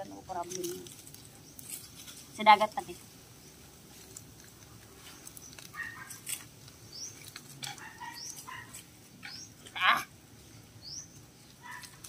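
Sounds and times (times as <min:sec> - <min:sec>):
small wood fire crackling: 0:00.0 - 0:12.0
bird chirping: 0:05.0 - 0:12.0.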